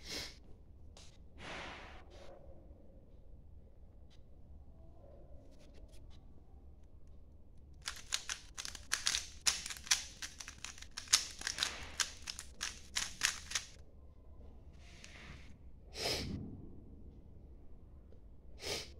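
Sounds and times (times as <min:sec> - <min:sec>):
plastic puzzle cube clicking: 0:07.8 - 0:13.8.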